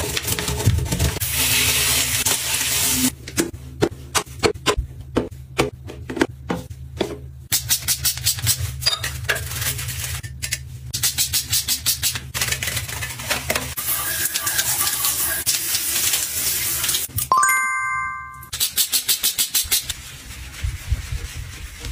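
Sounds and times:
hand shower spraying on tiles: 0:13.9 - 0:17.1, 0:18.5 - 0:21.9
short pitched tone: 0:17.3 - 0:18.5.

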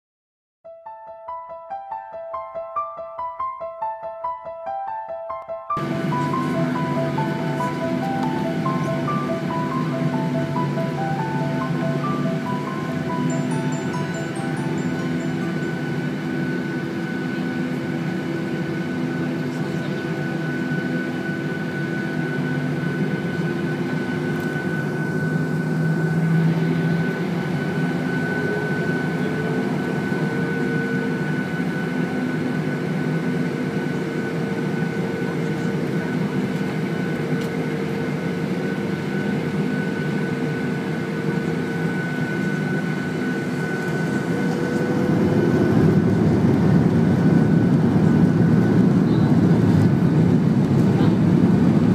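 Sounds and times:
jet engines humming and whining: 0:05.7 - 0:51.9.

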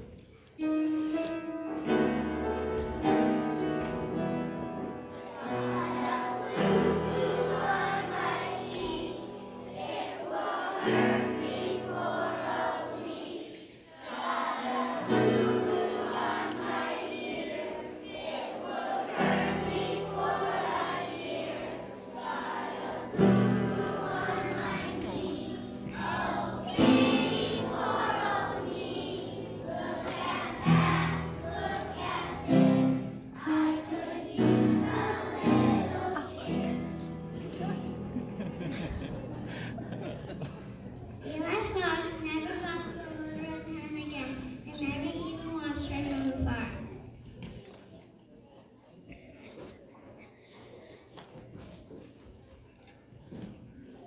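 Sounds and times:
children's choir singing: 0:00.0 - 0:45.3
instrumental backing music: 0:00.6 - 0:09.2.

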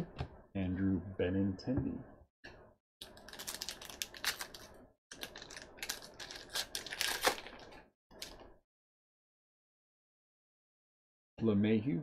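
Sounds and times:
plastic wrapper tearing and crinkling: 0:03.0 - 0:08.4.

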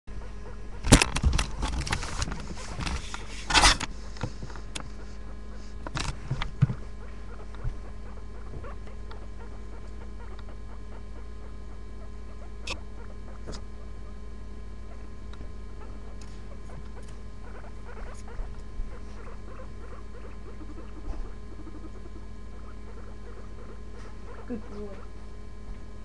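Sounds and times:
low hum: 0:00.1 - 0:26.0
rustling and crackling: 0:00.2 - 0:12.0.

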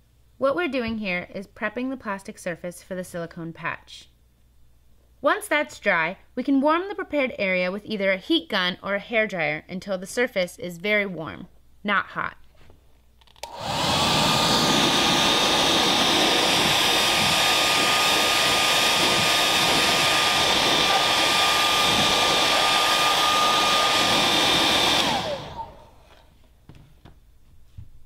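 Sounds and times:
hair dryer running: 0:13.4 - 0:26.3.

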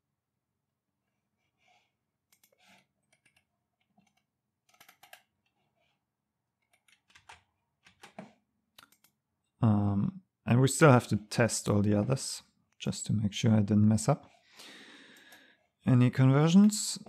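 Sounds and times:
keyboard and mouse clicks: 0:02.3 - 0:05.6, 0:06.6 - 0:09.2.

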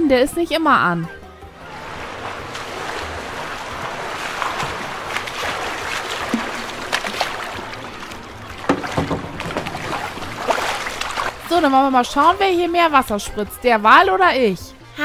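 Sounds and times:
water jet splashing into basin: 0:01.7 - 0:12.6.

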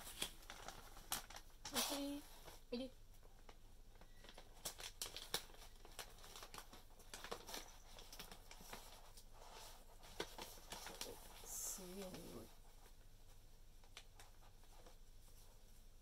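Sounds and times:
plastic packet crinkling: 0:00.0 - 0:02.6, 0:03.2 - 0:12.4.

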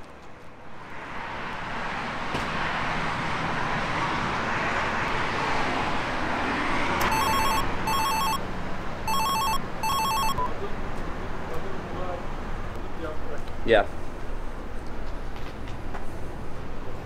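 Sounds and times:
outdoor background noise: 0:00.0 - 0:17.0
mobile phone ringtone: 0:07.0 - 0:08.4, 0:09.0 - 0:10.6.

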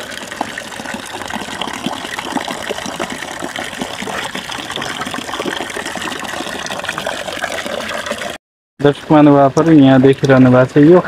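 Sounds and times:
water pouring from spout: 0:00.0 - 0:08.4
water splashing: 0:00.0 - 0:08.4.

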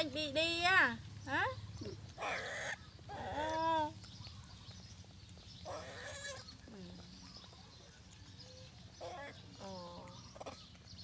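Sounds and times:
monkey whining cry: 0:02.2 - 0:03.7, 0:05.7 - 0:06.4.

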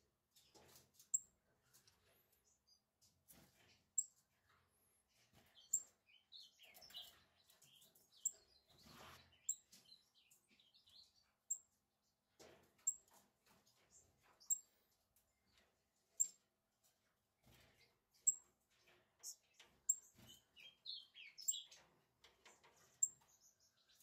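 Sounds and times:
soft bird twittering: 0:05.6 - 0:11.7, 0:19.2 - 0:21.8.

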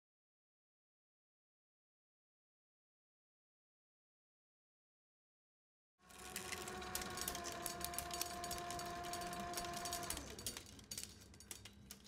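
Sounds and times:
motor whine: 0:06.0 - 0:10.6
film clicking: 0:06.1 - 0:12.0.

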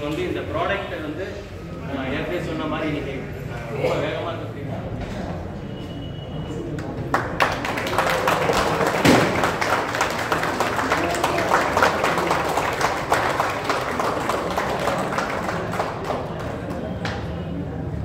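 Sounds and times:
people clapping: 0:06.6 - 0:17.7.

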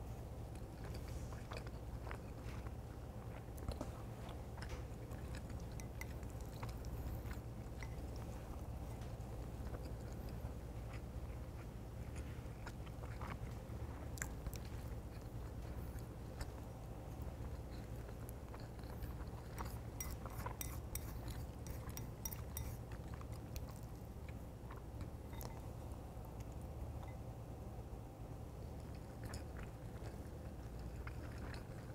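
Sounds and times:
chewing rice: 0:00.0 - 0:27.5, 0:28.3 - 0:31.9
steady low hum: 0:00.0 - 0:31.9.

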